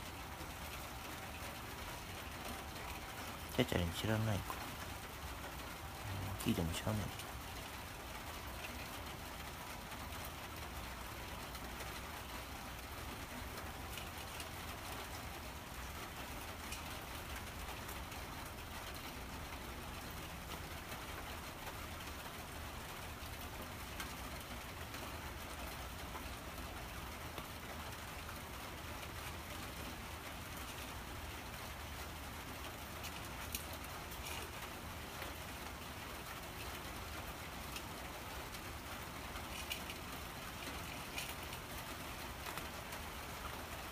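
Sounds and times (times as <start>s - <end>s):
steady hiss: 0.0s - 43.9s
cat chewing and licking: 25.8s - 43.7s.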